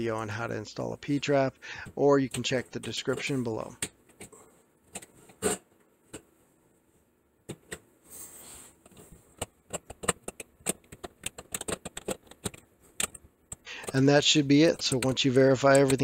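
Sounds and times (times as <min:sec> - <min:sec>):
plastic parts clicking and knocking: 0:08.8 - 0:16.0.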